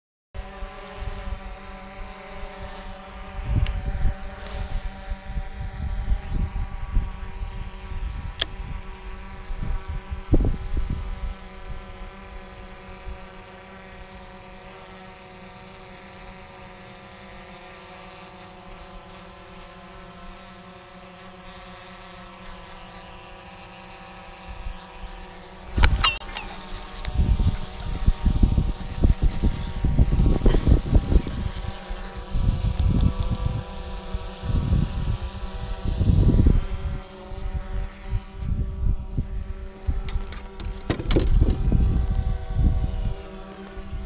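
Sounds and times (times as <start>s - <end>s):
drone propellers humming: 0.4s - 44.0s
low wind rumble: 27.0s - 44.0s.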